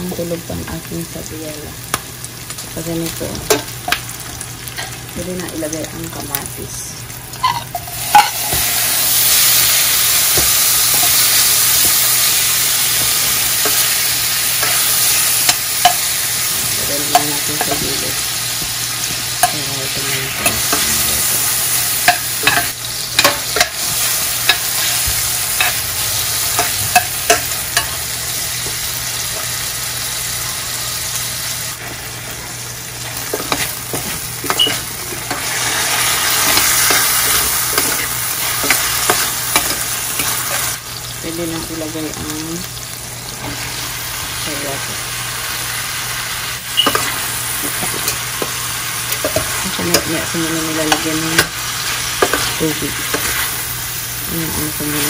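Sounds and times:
food sizzling in a frying pan: 0.0 - 55.0
spoon scraping a pan: 7.3 - 28.0, 33.1 - 40.7, 46.7 - 53.7.

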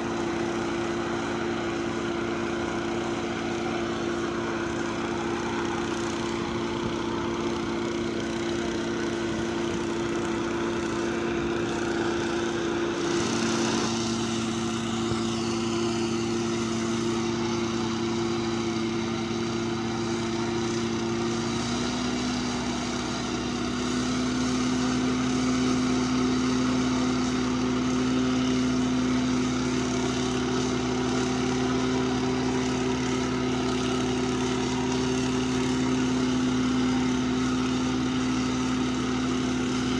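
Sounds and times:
small petrol engine running: 0.0 - 39.9.

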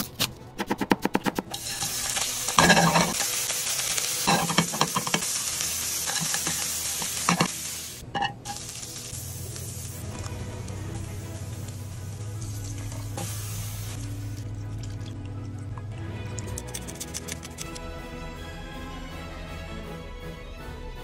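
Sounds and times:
seafood sizzling in oil: 1.5 - 14.5.

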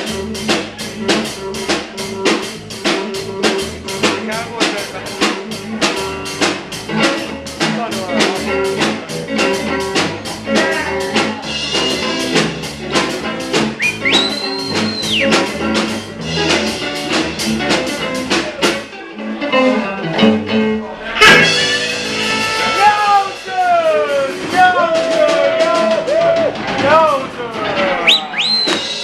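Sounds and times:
drum kit beat: 0.0 - 29.0
guitars: 0.0 - 29.0
loud cymbal crash: 21.0 - 22.8
high held note: 21.0 - 23.4.

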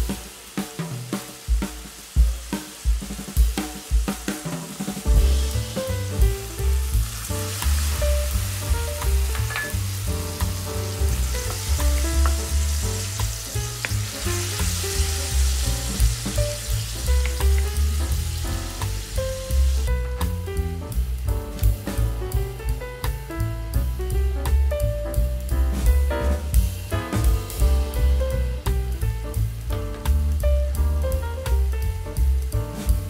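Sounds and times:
food sizzling in a frying pan: 0.0 - 22.0
music with bass beat: 0.0 - 33.0.

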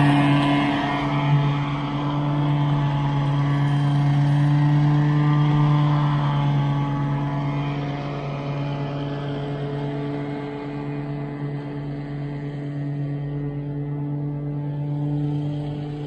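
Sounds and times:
lawn mower engine running: 0.0 - 16.0.

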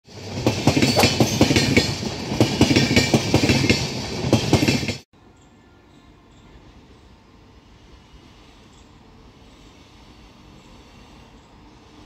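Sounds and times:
train wheels clattering over rail joints: 0.3 - 5.0.

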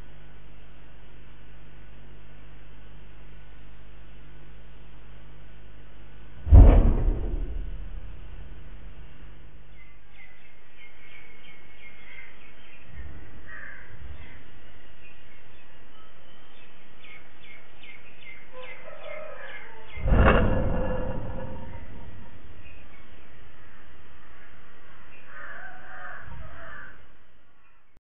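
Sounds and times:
loud boom with deep rumble: 6.4 - 8.9, 20.0 - 22.6
small birds chirping: 9.6 - 20.1
crows cawing: 13.1 - 14.0, 23.6 - 27.2.

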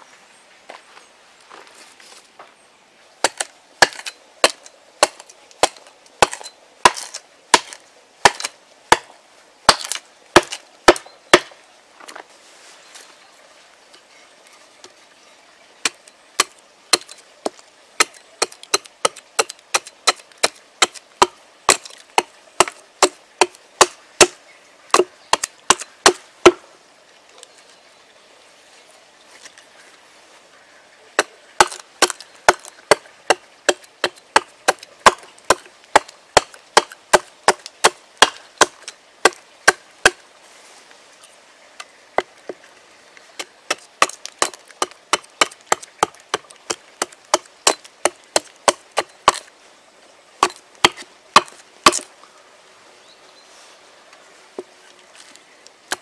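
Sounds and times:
hatchet chopping wood: 3.2 - 9.1, 9.7 - 11.6, 15.8 - 26.6, 31.2 - 40.2, 43.7 - 49.5, 50.4 - 52.1.

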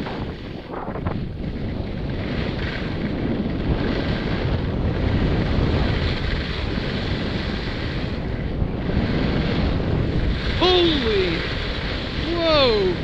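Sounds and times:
wind buffeting microphone: 0.0 - 13.0
skis sliding on snow: 1.4 - 9.7.

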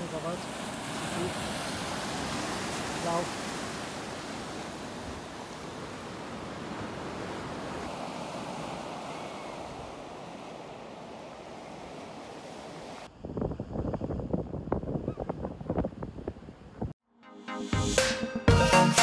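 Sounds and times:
ocean surf rushing: 0.0 - 13.1
wind on microphone: 12.8 - 17.0.

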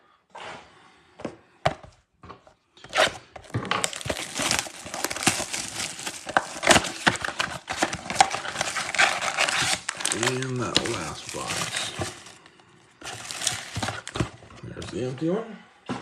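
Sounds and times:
foil packs crinkling: 2.9 - 14.5.

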